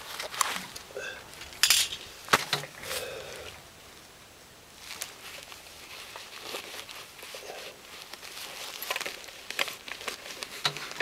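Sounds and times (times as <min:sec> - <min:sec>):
gloves and jacket rustling: 0:00.0 - 0:03.6, 0:04.7 - 0:11.0
helmet shell clicks and knocks: 0:01.4 - 0:02.8.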